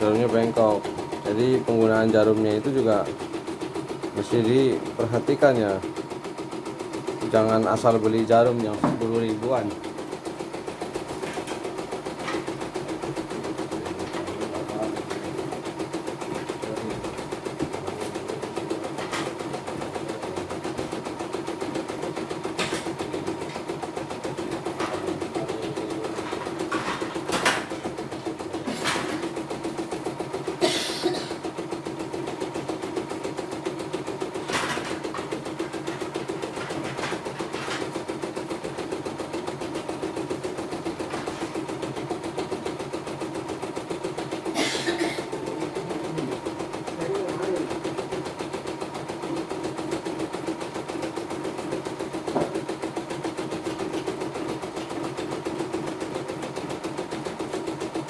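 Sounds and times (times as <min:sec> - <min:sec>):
embroidery machine stitching: 0:00.0 - 0:58.0.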